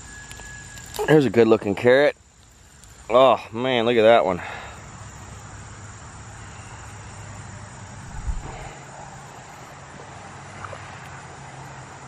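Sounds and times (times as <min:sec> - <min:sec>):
distant engine drone: 0:04.4 - 0:10.9
short low rumble: 0:08.0 - 0:08.8.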